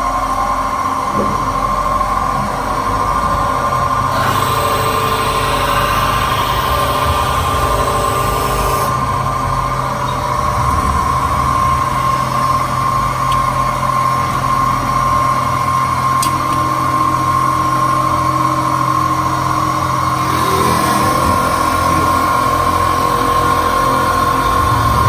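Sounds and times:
factory machinery humming and whining: 0.0s - 25.0s.

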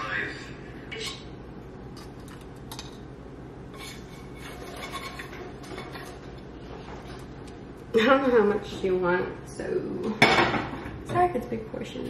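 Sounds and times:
utensil scraping pan and plates: 3.7s - 7.3s.

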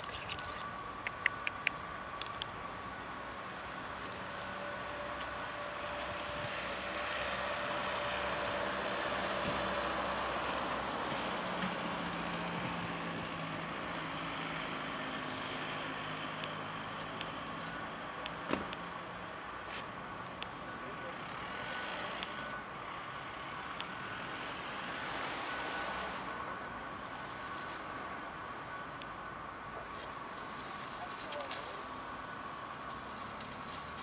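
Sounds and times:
vehicle passing: 0.0s - 34.0s
sharp tick: 0.3s - 2.5s.

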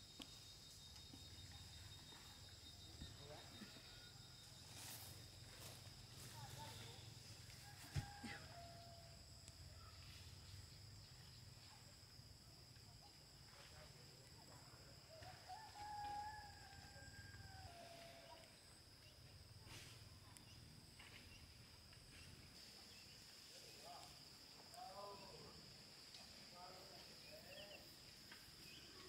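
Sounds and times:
rooster crowing: 7.6s - 9.2s, 15.2s - 18.1s.

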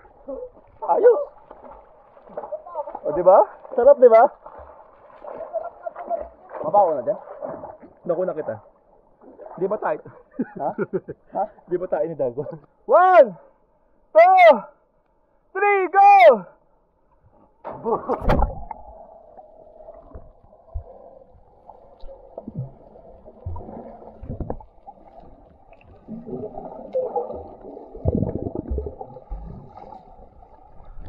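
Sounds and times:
dull underwater thumps: 17.6s - 19.0s, 22.0s - 29.9s
underwater churning and gurgling: 18.2s - 31.0s.

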